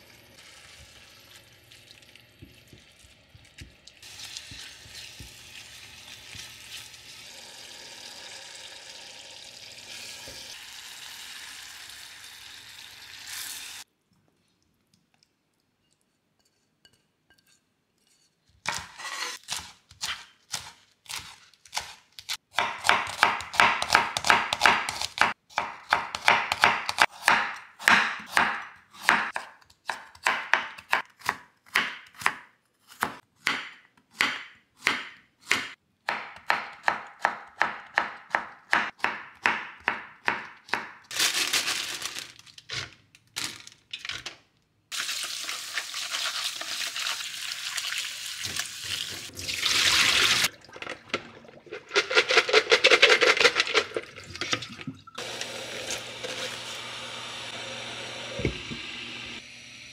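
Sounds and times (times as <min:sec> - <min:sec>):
tap water running: 0:00.0 - 0:13.8, 0:44.9 - 0:59.4
knife chopping on wooden board: 0:18.6 - 0:41.0.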